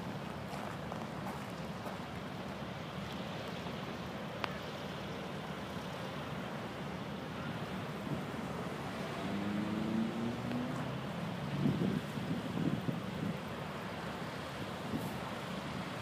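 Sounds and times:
hovercraft low drone: 0.0s - 16.0s
higher engine tones: 6.8s - 13.3s.

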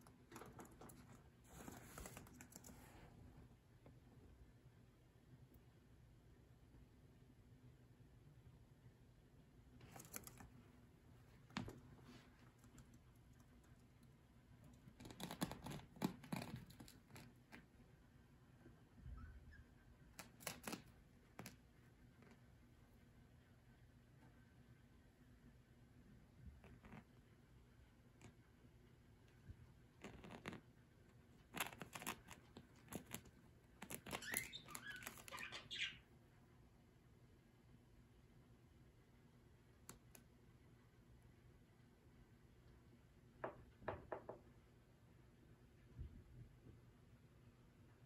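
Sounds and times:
bird crunching paper with beak: 14.9s - 17.5s, 20.2s - 21.6s, 31.5s - 35.4s
bird chirping softly: 19.0s - 20.8s, 31.5s - 36.5s.

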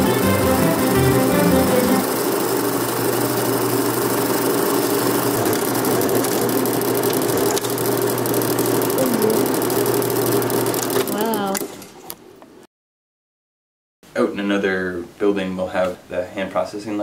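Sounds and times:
music: 0.0s - 2.3s
film projector motor hum: 0.0s - 11.8s.

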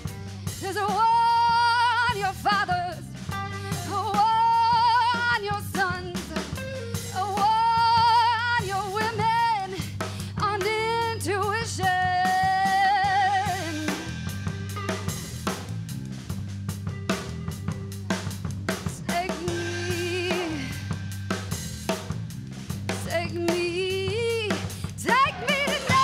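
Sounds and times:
woman singing: 0.0s - 14.1s, 18.8s - 20.9s, 22.9s - 26.0s
bass guitar: 0.0s - 26.0s
drum kit: 0.0s - 26.0s
electric guitar: 3.2s - 4.1s, 5.8s - 7.2s, 13.4s - 20.8s.

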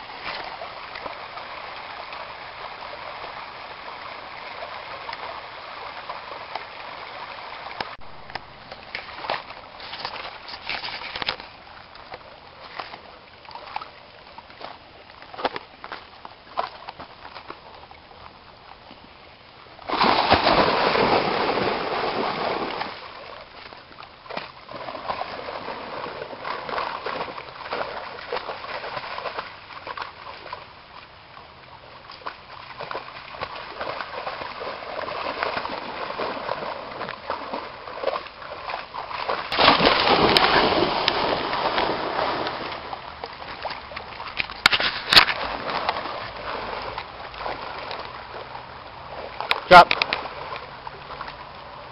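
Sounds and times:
dog splashing through water: 19.9s - 23.4s, 24.3s - 30.7s, 31.6s - 51.5s.

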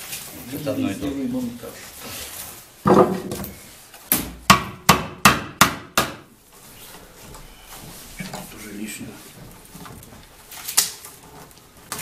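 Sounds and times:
hand tool knocking on wicker: 4.2s - 6.3s.

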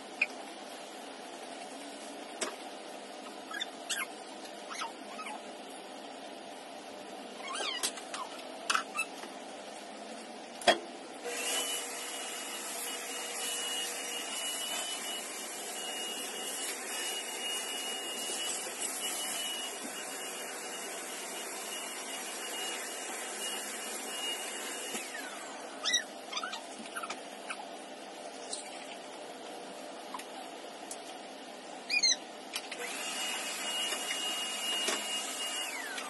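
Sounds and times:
handheld vacuum cleaner whine: 11.2s - 25.9s, 32.6s - 36.0s.

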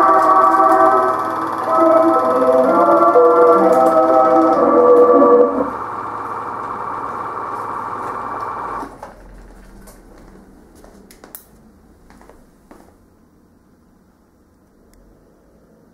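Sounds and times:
film projector whirring: 0.0s - 10.2s.

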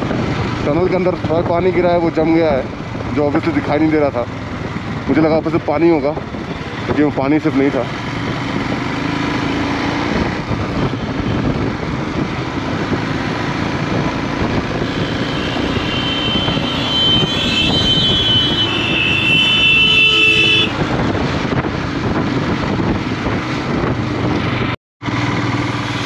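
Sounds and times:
wind noise: 0.0s - 3.0s, 9.7s - 24.8s
vehicle horn: 15.0s - 20.8s.

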